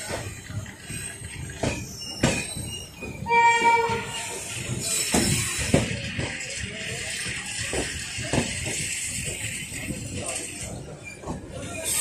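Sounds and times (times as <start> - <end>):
train wheels rumbling over rail joints: 0.0 - 12.0
train horn blast: 3.3 - 4.2.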